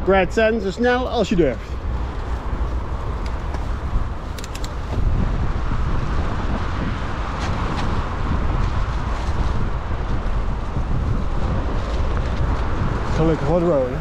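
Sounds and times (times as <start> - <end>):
wind buffeting microphone: 0.0 - 14.0
mountain bikes on dirt trail: 0.1 - 14.0
sharp clicks and rattles: 3.1 - 5.0.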